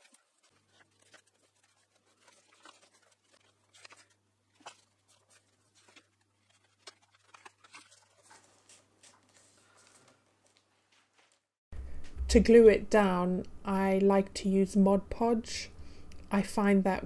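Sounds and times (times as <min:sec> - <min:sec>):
paper rustling and tapping: 0:00.0 - 0:11.4
low steady hum: 0:11.8 - 0:17.0.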